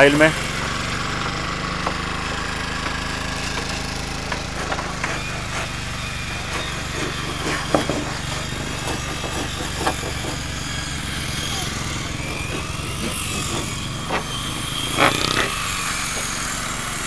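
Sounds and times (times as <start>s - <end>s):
engine running steadily: 0.0s - 17.0s
tools knocking on wood: 1.7s - 5.4s, 6.5s - 10.5s.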